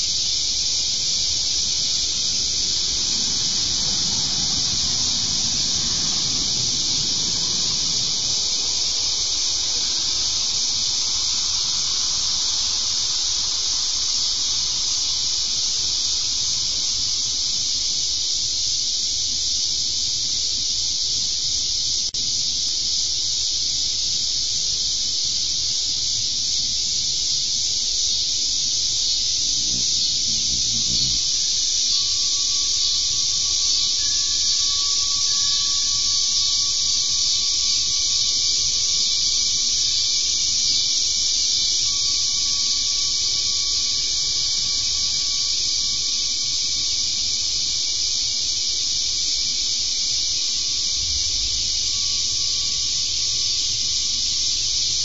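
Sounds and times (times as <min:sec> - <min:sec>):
insects shrilling: 0:00.0 - 0:55.0
passing car rumble: 0:00.3 - 0:17.5, 0:29.4 - 0:33.6, 0:50.6 - 0:55.0.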